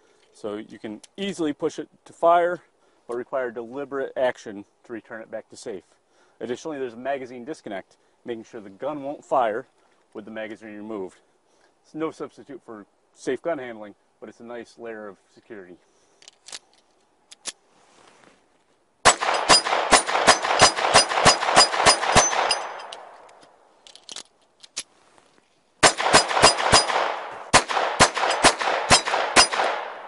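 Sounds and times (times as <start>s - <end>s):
pistol shots with echo: 19.0s - 22.9s, 25.8s - 30.0s.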